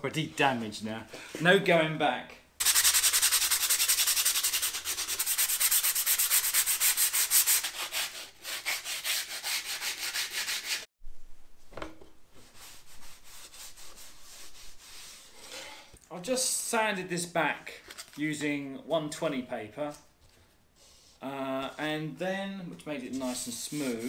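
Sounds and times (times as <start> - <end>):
sandpaper rubbing on board: 2.6 - 10.9, 12.5 - 15.4, 23.1 - 24.0
cloth wiping dust: 12.4 - 15.6.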